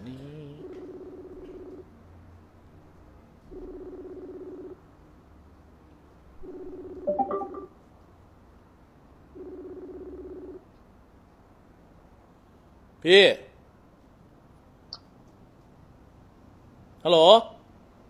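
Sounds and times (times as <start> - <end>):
telephone ringback tone: 3.5 - 4.8, 6.4 - 7.8, 9.4 - 10.6.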